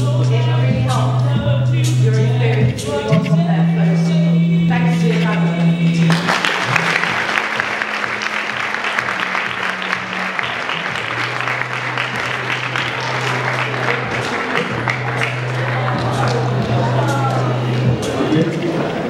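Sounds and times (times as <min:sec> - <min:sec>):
music: 0:00.0 - 0:19.0
crowd clapping: 0:06.0 - 0:19.0.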